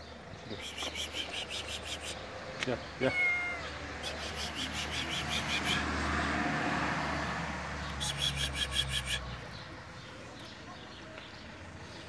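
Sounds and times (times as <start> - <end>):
motor vehicle passing: 0.3 - 12.0.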